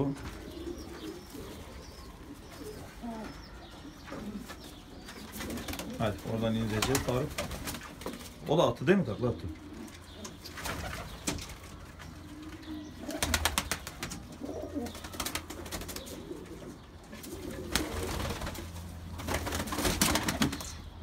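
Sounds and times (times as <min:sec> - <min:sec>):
pigeons cooing: 0:00.0 - 0:21.0
pigeon wing claps: 0:13.1 - 0:14.3, 0:19.2 - 0:20.8.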